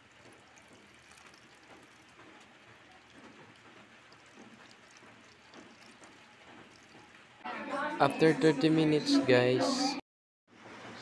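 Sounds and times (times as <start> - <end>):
water pouring into a basin: 0.0 - 7.4.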